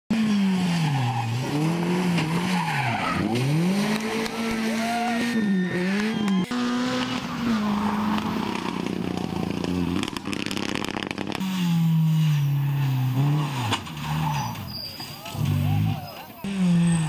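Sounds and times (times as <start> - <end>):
rally car engines revving: 0.1 - 17.0
tyres sliding on loose gravel: 12.7 - 16.4.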